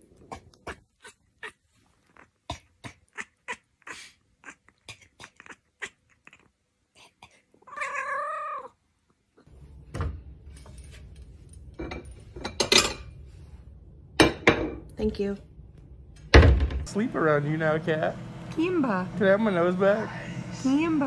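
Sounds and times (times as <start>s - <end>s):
cat meowing: 7.7s - 8.8s
plates clinking in cupboard: 10.0s - 13.2s, 14.2s - 14.9s.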